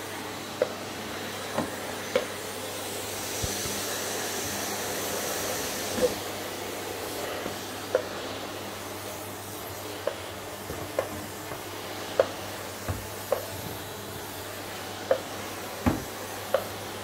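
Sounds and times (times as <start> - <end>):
vacuum cleaner running: 0.0 - 17.0
dull thumps: 15.8 - 16.1.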